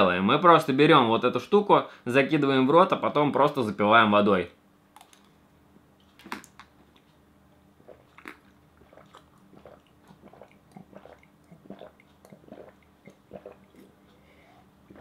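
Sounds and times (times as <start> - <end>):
person chewing: 6.0 - 7.2, 7.8 - 15.0
person gulping water: 7.8 - 14.2.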